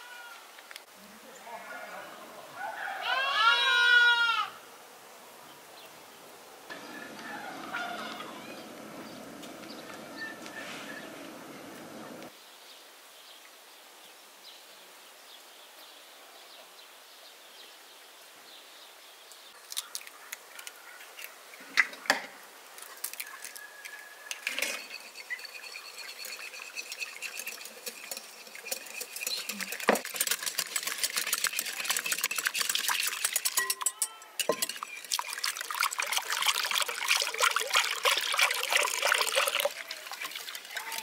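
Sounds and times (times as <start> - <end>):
fork beating eggs in glass bowl: 23.3 - 41.0
eggs cracked against glass bowl: 27.8 - 35.2.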